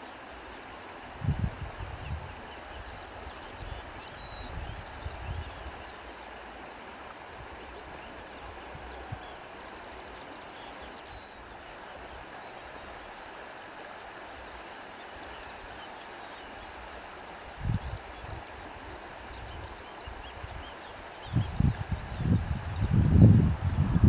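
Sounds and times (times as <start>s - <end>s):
wind blowing: 1.0s - 6.1s, 16.8s - 24.0s
wind buffeting microphone: 1.1s - 5.8s, 17.6s - 18.5s, 21.3s - 24.0s.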